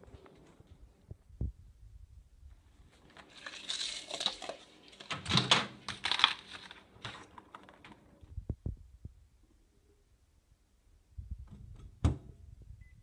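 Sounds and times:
rustling and crinkling handling: 0:02.6 - 0:08.4.

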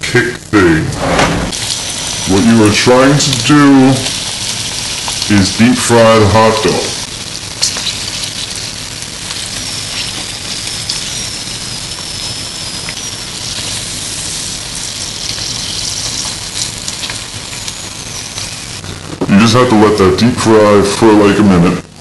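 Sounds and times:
deep frying sizzle with pops: 0:00.0 - 0:21.0.

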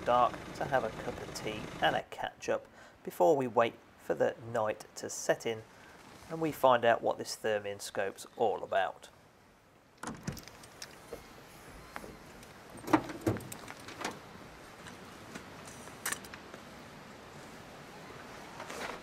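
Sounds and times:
truck doors and tailgate clunking: 0:12.8 - 0:14.2.

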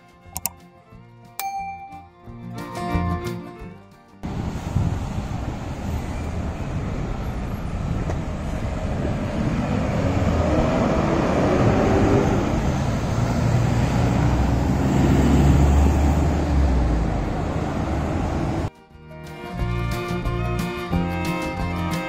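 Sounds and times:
heavy truck passing: 0:04.2 - 0:18.7
hum of engines and tyres: 0:04.2 - 0:18.7
vehicles passing: 0:04.2 - 0:18.7.

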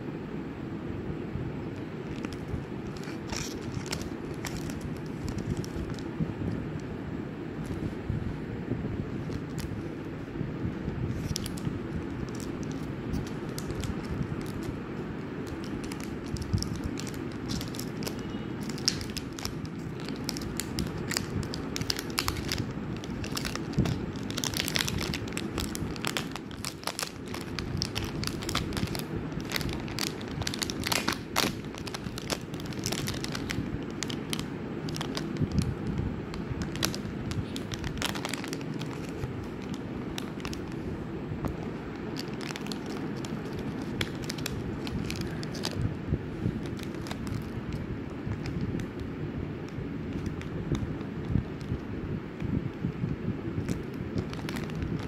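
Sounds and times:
low background noise: 0:00.0 - 0:55.0
wrapper and foil crinkling: 0:02.0 - 0:06.2, 0:11.1 - 0:14.8, 0:15.4 - 0:40.9, 0:41.5 - 0:45.8, 0:46.5 - 0:49.0, 0:50.1 - 0:50.9, 0:53.6 - 0:55.0.

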